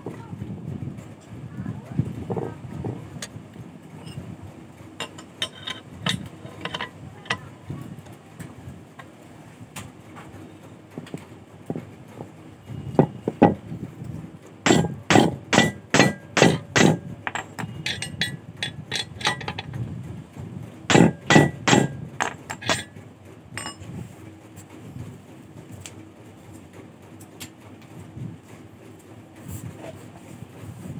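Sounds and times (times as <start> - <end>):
hammer blows on metal: 14.6 - 19.7, 20.9 - 22.9.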